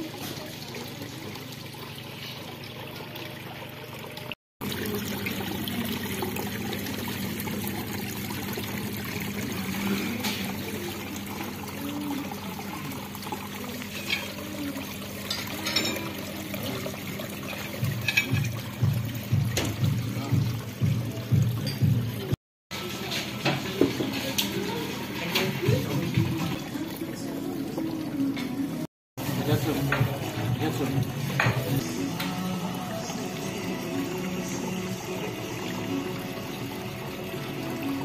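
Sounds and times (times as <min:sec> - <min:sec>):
waterfall trickling and splashing: 0:00.0 - 0:27.1.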